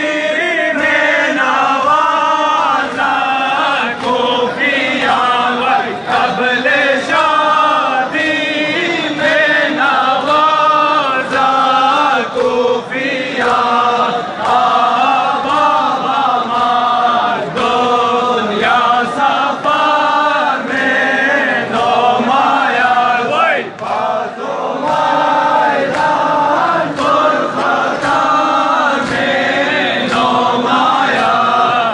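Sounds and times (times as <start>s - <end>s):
crowd of men chanting: 0.0s - 31.9s
sharp rhythmic strikes: 0.0s - 31.9s.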